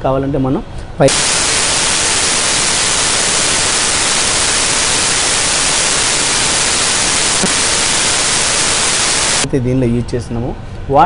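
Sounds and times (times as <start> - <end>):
loud static hiss: 1.0 - 9.5.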